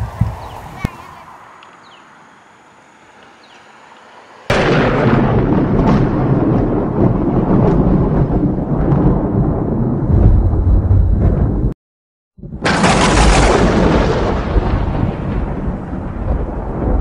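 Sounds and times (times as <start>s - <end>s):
thunder crack and rumble: 0.0s - 0.9s, 4.5s - 11.8s, 12.4s - 17.0s.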